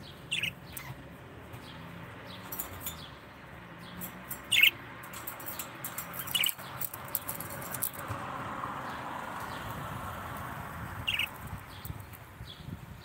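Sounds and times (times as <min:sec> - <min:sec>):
budgerigars chirping: 0:00.1 - 0:01.0, 0:04.5 - 0:04.8, 0:11.0 - 0:11.9.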